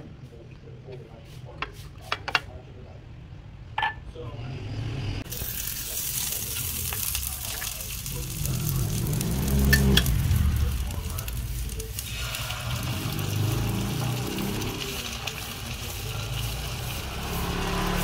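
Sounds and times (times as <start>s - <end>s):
butter sizzling in a frying pan: 5.3s - 18.0s.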